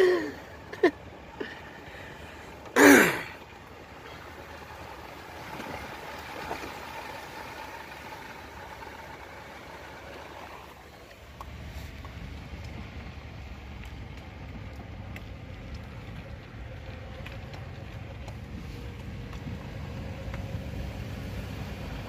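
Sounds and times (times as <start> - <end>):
truck rolling on snow: 0.0 - 22.0
person short vocal sound: 2.8 - 3.3.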